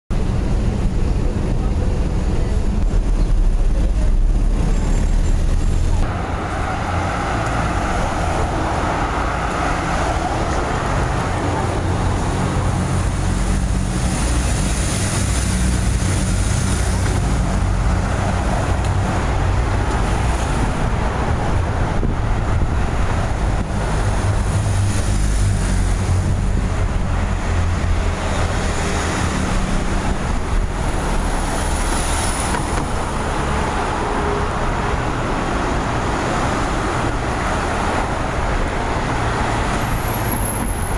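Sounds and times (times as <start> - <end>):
traffic engines and tyres: 0.1 - 40.9
wind rumble on microphone: 7.2 - 33.3.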